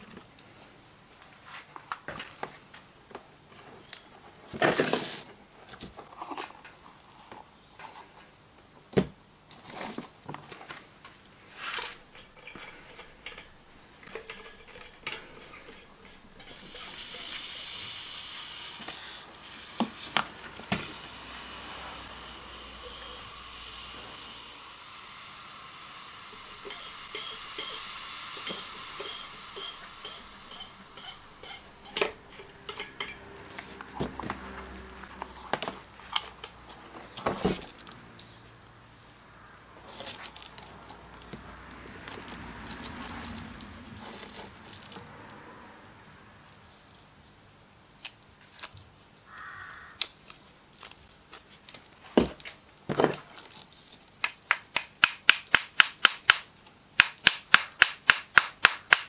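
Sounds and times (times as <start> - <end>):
air hissing through hose: 11.4 - 33.8
metal parts clattering on bench: 11.5 - 17.5, 28.4 - 33.8.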